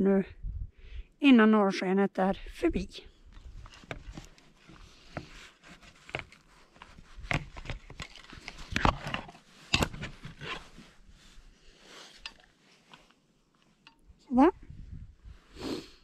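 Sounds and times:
camera handling clicks and knocks: 6.0 - 10.6.

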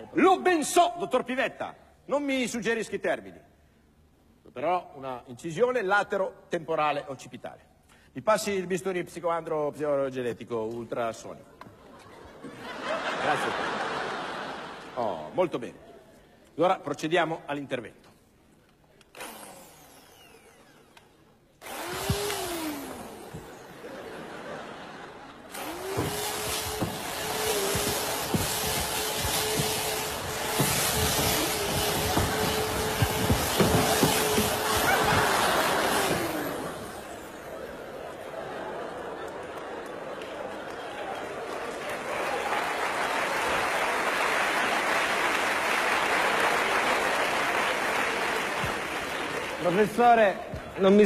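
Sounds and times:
power tool motor whirring: 19.0 - 24.2, 25.4 - 38.0
audience applauding: 23.3 - 50.2.

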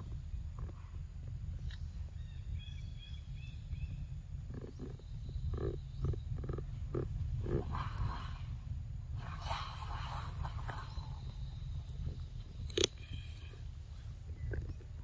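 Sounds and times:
low rumble: 0.0 - 15.0
monkeys grunting softly: 4.5 - 8.6
thin high whine: 7.5 - 14.7.

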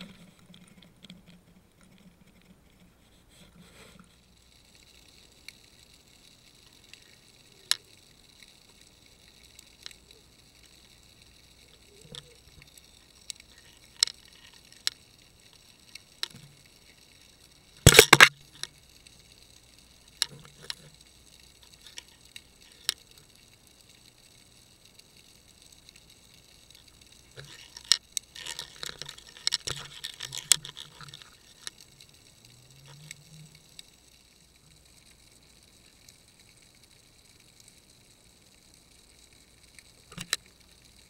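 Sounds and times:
faint steady hiss: 0.0 - 41.0
sharp underwater clicks: 4.4 - 41.0.

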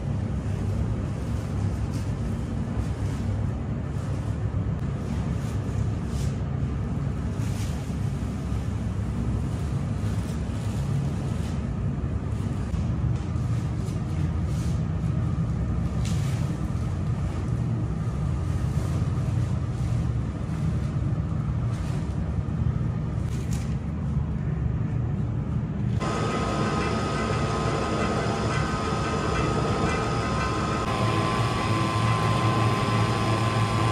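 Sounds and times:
bakery machinery rumble: 0.0 - 33.9
flour sacks rustling: 0.1 - 24.4
steady machine whine: 25.8 - 33.9.

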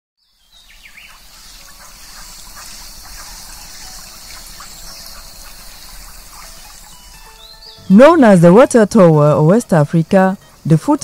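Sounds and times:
short chirping calls: 0.2 - 8.6.

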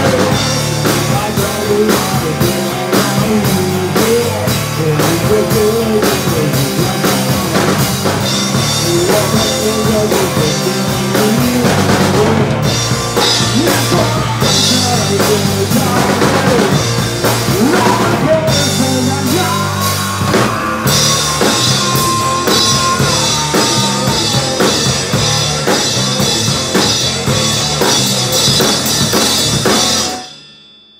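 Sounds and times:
rock band playing live: 0.0 - 30.4
drum kit and cymbals: 0.0 - 30.5
electric guitar long high note: 18.0 - 26.6.

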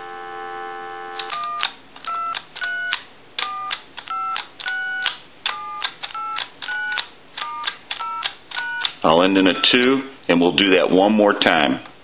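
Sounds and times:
telephone dial tone: 0.0 - 8.9.

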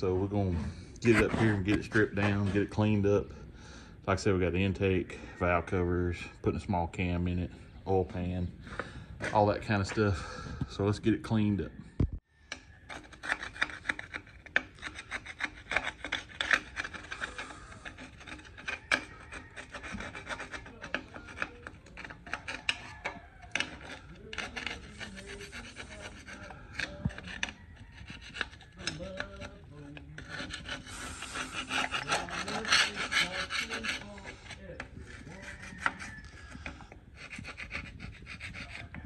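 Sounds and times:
metal blade scraping grime: 0.2 - 3.2, 12.5 - 39.0.

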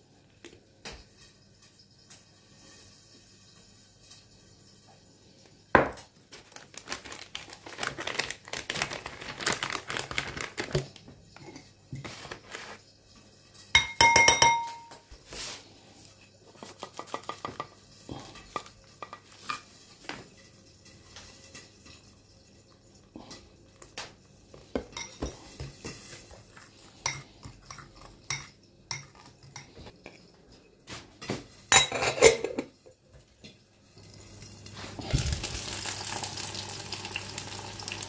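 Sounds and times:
foil wrapper crinkling: 6.3 - 11.2, 12.0 - 12.9, 34.9 - 38.0
knife clinking against glass bowl: 13.8 - 15.0, 31.7 - 32.6.

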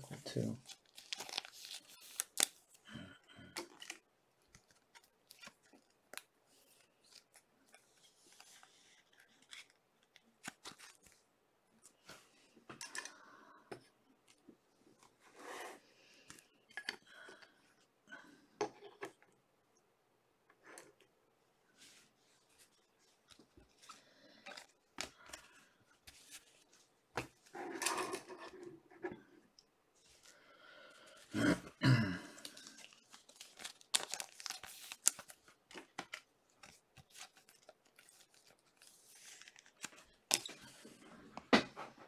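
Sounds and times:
cards rustling and sliding: 3.6 - 11.2, 32.5 - 41.0.

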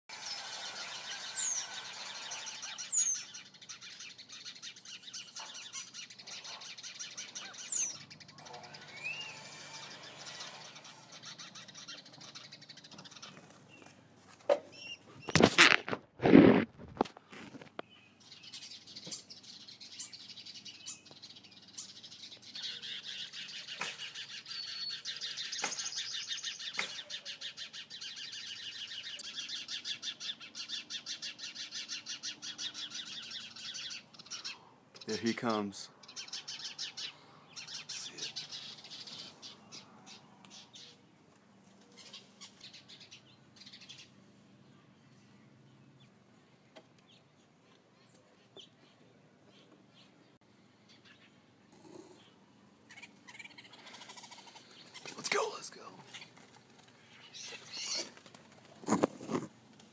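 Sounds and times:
high downward-sliding bird calls: 0.1 - 14.0, 17.9 - 41.1, 57.0 - 58.2
small birds chirping: 0.1 - 15.4, 17.6 - 59.9.

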